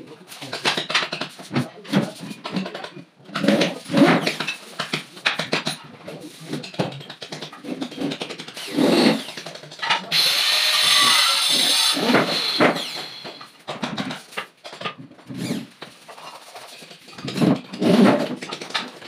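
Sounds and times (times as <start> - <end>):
knocks and board handling: 0.0 - 10.1, 11.4 - 19.0
cordless drill whirring: 8.6 - 9.4, 10.1 - 13.5.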